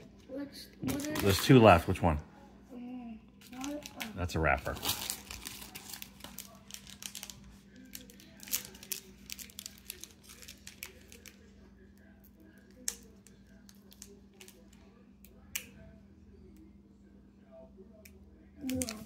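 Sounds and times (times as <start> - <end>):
foil wrapper crinkling: 3.5 - 11.5.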